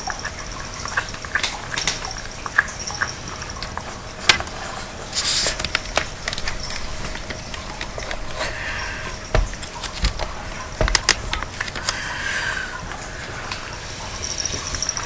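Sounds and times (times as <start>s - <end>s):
cats eating from bowls: 0.0s - 15.0s
hissy rustle: 4.0s - 10.0s.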